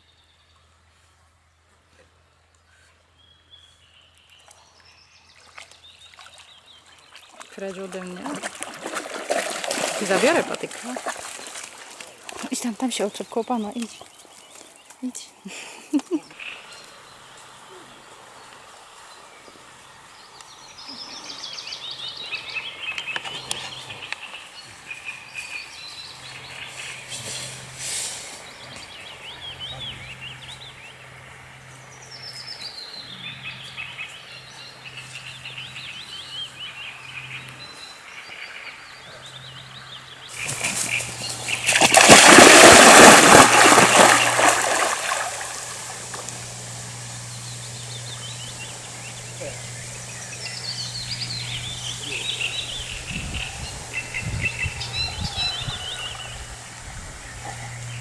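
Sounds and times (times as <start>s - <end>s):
small birds chirping and trilling: 2.4s - 8.6s, 9.5s - 42.4s, 46.0s - 58.0s
dog splashing into water: 5.4s - 12.6s, 40.3s - 46.3s.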